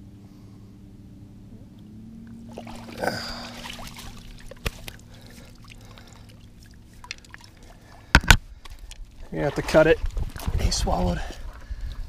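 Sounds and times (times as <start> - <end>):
steady low drone: 0.0 - 9.3
water splashing and trickling: 2.2 - 12.0.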